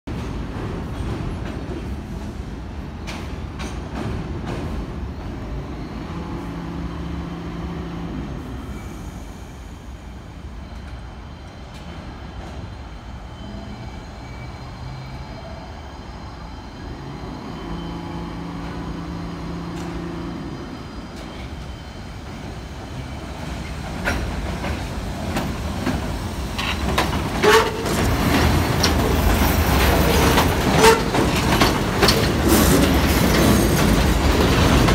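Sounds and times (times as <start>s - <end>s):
subway train rumble: 0.1s - 34.9s
train hum: 0.1s - 34.9s
wheels clicking over rail joints: 23.8s - 34.9s.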